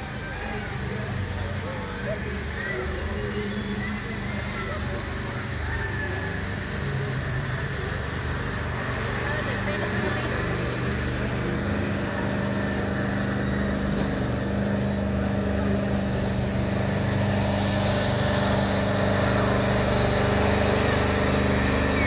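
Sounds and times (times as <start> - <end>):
engine running: 0.0 - 22.0.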